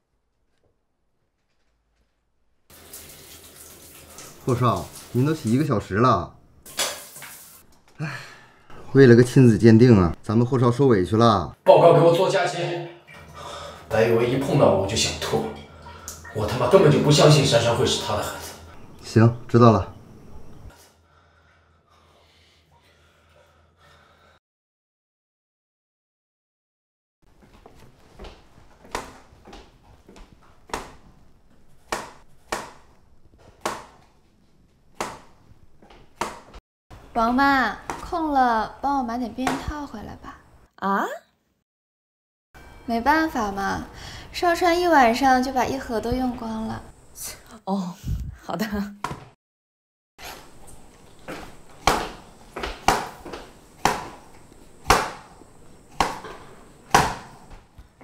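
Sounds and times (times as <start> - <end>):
knife chopping on cutting board: 31.8 - 34.0, 35.0 - 35.4, 36.2 - 36.5, 51.8 - 55.3, 55.9 - 57.4.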